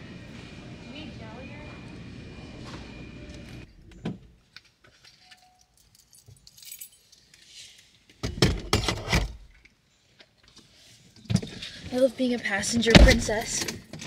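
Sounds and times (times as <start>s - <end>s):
keys jangling: 5.0s - 7.6s.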